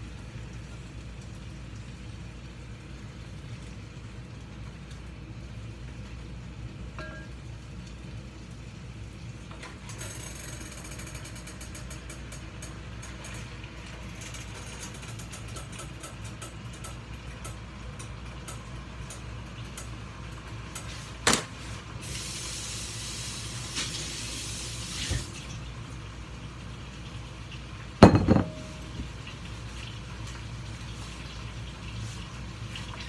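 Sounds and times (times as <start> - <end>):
water running from tap: 0.0 - 33.0
cookware clanking: 7.0 - 7.4, 28.0 - 29.1.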